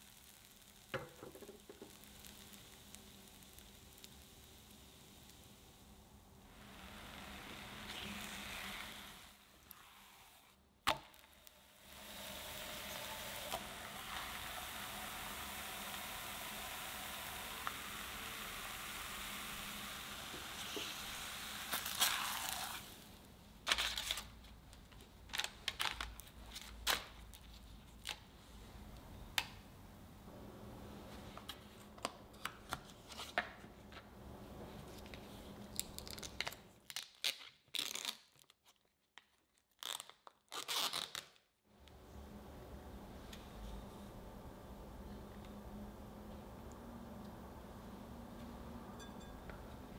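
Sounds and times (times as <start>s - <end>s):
faint sizzle in a pan: 0.0s - 23.4s.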